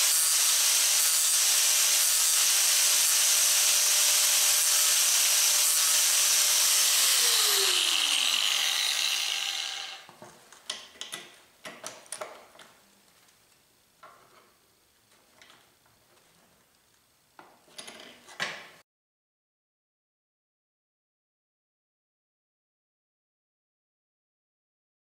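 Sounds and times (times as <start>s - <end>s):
angle grinder grinding metal: 0.0s - 10.1s
grinder disc spinning down: 6.0s - 10.1s.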